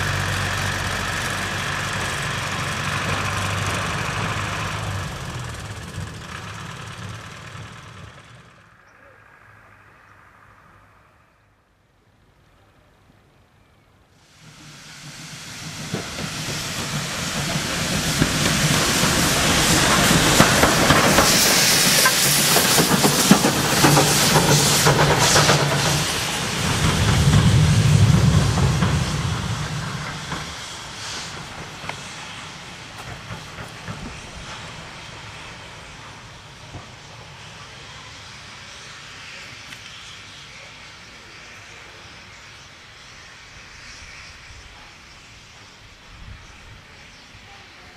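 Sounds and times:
wheels clanking on rails: 0.0s - 8.9s, 14.4s - 37.8s
steam hissing: 0.0s - 9.5s, 14.1s - 47.9s.

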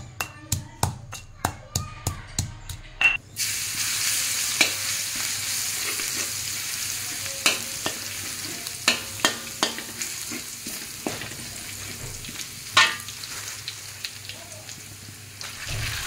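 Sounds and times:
garlic sizzling in oil: 3.4s - 16.0s
spatula scraping a wok: 4.0s - 13.6s.

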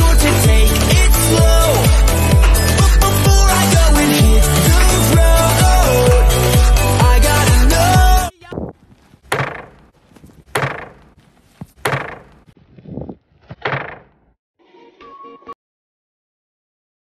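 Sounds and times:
sharp knocks or thuds: 9.2s - 9.9s, 10.5s - 12.5s, 13.5s - 14.2s.

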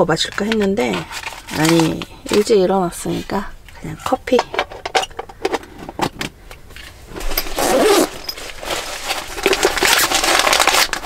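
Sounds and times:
rummaging through fabric pouch: 7.2s - 11.0s.

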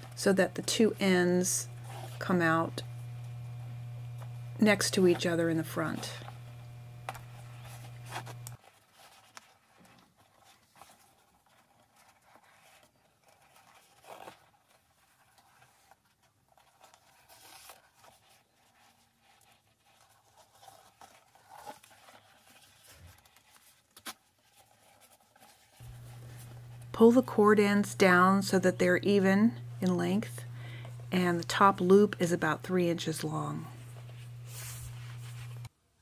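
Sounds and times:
cord rustling through bag holes: 5.0s - 26.9s.

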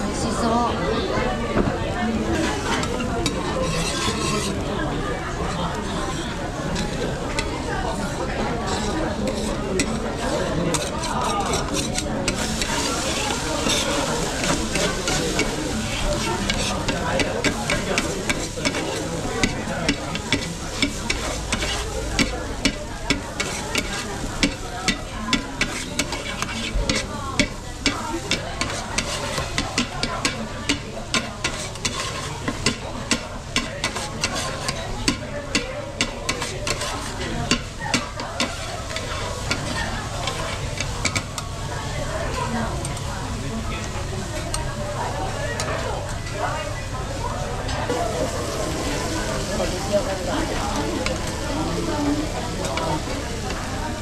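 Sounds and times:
batter sizzling on griddle: 2.0s - 54.0s
metal spatulas tapping and scraping: 2.4s - 4.6s, 5.5s - 41.5s.

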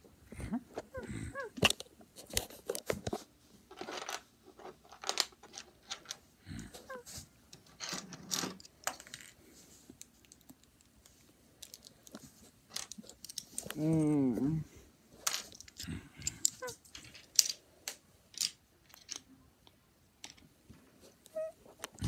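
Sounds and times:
plastic bricks clicking and clattering: 3.7s - 6.2s, 7.6s - 9.4s, 10.0s - 13.8s, 15.2s - 19.3s.

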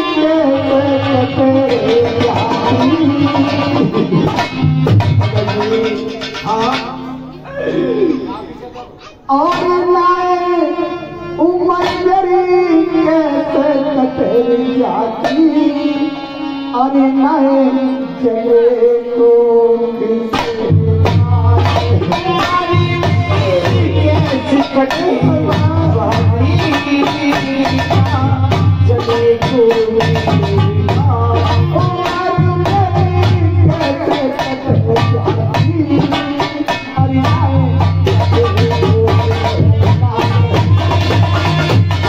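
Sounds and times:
hand drums: 0.0s - 7.4s, 20.2s - 42.0s
harmonium melody: 0.0s - 7.4s, 8.1s - 42.0s
tabla strokes: 0.0s - 7.4s, 20.2s - 42.0s.

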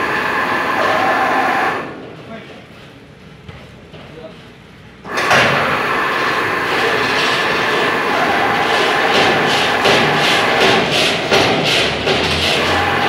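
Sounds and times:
plate rolling machine drone: 0.0s - 2.2s, 5.1s - 13.0s.

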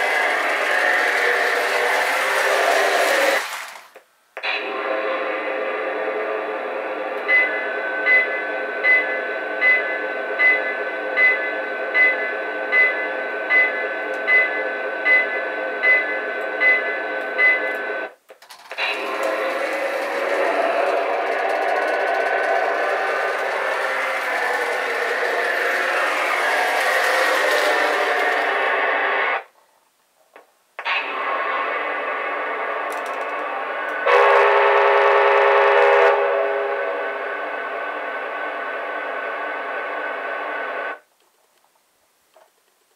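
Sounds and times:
locomotive whistle: 0.0s - 3.4s, 4.4s - 15.4s, 18.8s - 29.4s, 31.0s - 38.4s
mechanical hum with several tones: 0.0s - 3.4s, 4.4s - 29.5s, 30.8s - 41.0s
electronic whine: 18.8s - 29.5s.

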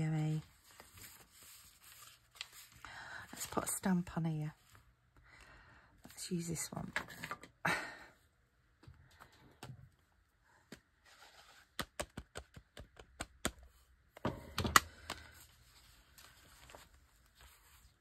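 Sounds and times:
rubber stamp tapping ink pad: 11.8s - 13.6s.

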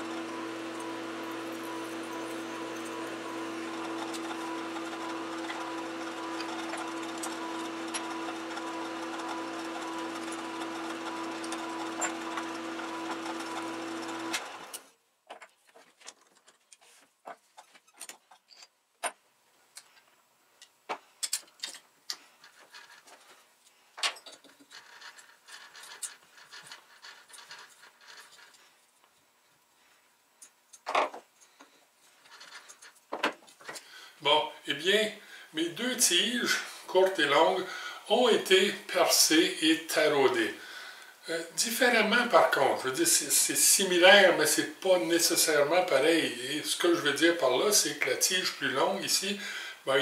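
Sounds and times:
metal lathe drilling: 0.0s - 14.8s
metal tools clicking and knocking: 20.6s - 22.5s, 24.0s - 24.7s.

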